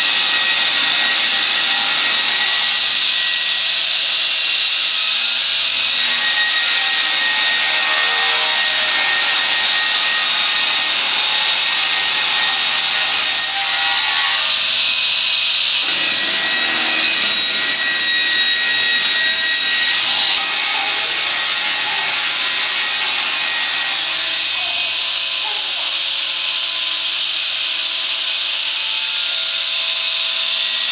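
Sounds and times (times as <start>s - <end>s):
saw cutting through log: 0.0s - 26.8s.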